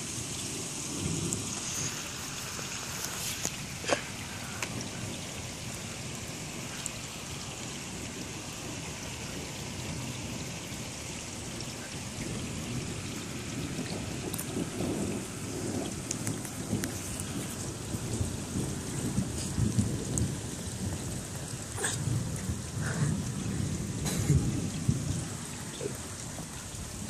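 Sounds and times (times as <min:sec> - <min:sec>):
steady rain falling: 0:00.0 - 0:27.0
thunder rumbling: 0:03.6 - 0:27.0.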